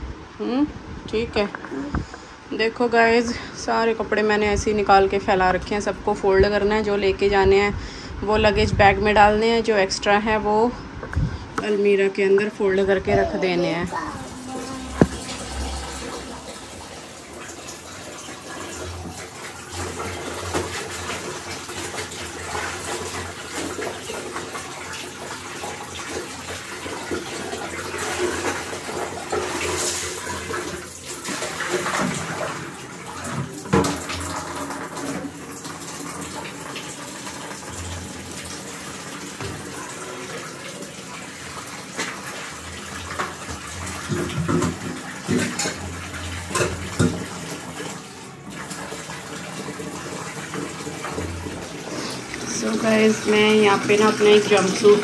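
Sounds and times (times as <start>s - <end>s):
water sloshing in bucket: 11.1s - 55.0s.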